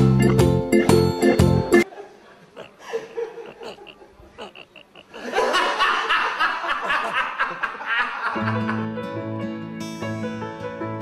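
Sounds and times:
burst of laughter: 0:01.8 - 0:08.8.

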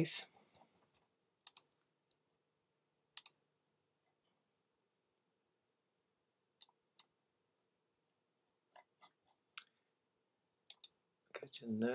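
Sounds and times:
computer mouse clicks: 0:00.5 - 0:02.2, 0:03.2 - 0:03.4, 0:10.7 - 0:11.0.

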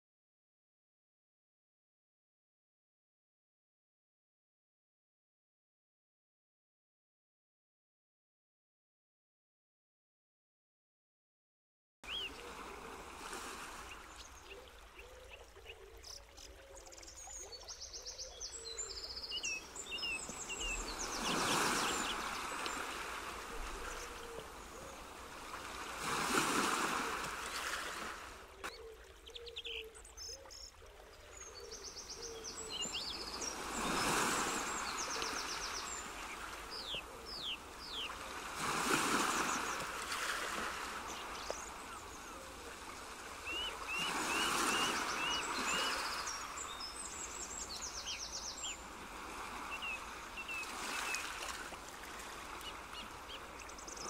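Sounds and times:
birds chirping and trilling: 0:12.1 - 0:12.6, 0:13.7 - 0:27.8, 0:28.6 - 0:51.4, 0:52.2 - 0:54.0
rushing water: 0:12.1 - 0:54.0.

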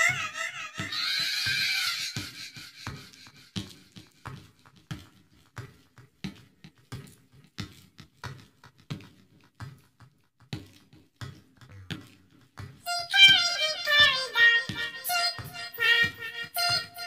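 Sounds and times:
clock ticking: 0:13.3 - 0:17.0.

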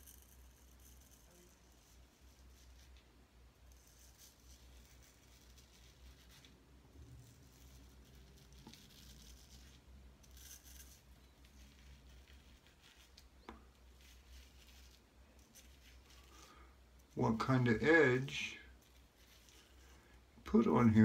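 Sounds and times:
razor scraping whiskers: 0:00.0 - 0:03.0, 0:07.1 - 0:17.2
low room hum: 0:00.0 - 0:21.0.

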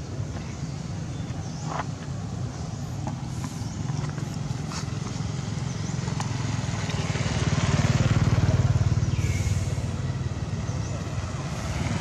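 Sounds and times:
motor engine running: 0:02.6 - 0:12.0.

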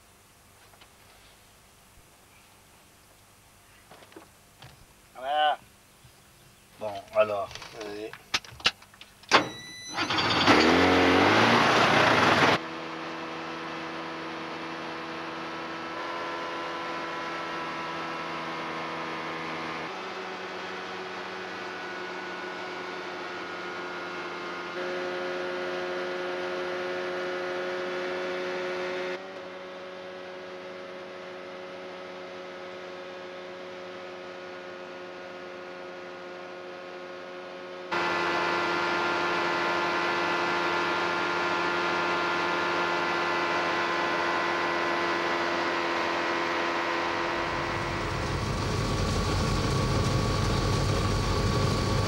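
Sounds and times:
aircraft engine starting and revving: 0:09.3 - 0:25.6, 0:38.0 - 0:52.0
engine and propeller drone: 0:09.3 - 0:52.0.

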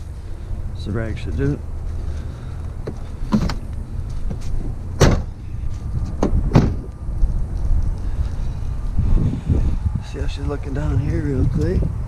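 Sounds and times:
wind rumble on microphone: 0:00.0 - 0:12.0
truck door knocks and clicks: 0:02.8 - 0:03.7, 0:05.0 - 0:05.4, 0:06.0 - 0:06.9.

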